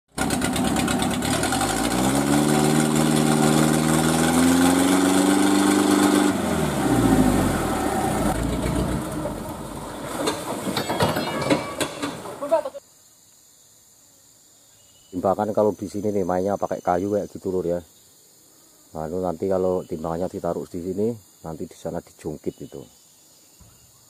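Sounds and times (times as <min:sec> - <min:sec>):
truck engine revving in mud: 0:00.1 - 0:10.8
sharp knocks: 0:10.1 - 0:12.4.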